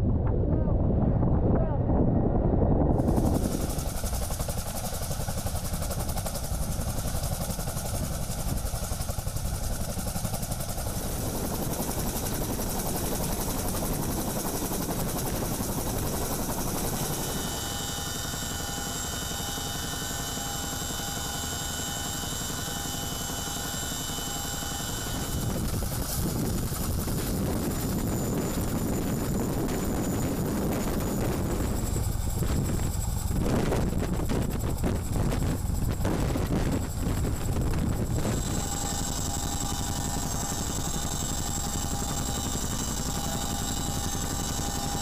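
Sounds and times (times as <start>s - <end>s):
helicopter rotor and turbine noise: 0.0s - 45.0s
high whining tones: 37.3s - 45.0s.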